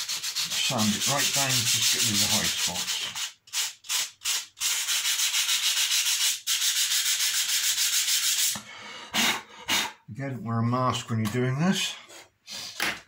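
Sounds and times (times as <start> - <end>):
sandpaper rubbing on wood: 0.0 - 8.6.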